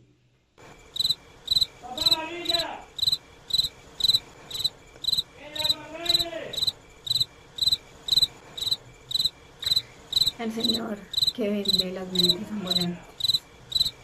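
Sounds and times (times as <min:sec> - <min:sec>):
high electronic beeps: 0:01.0 - 0:14.0
man calling out: 0:01.8 - 0:02.9, 0:05.4 - 0:06.7.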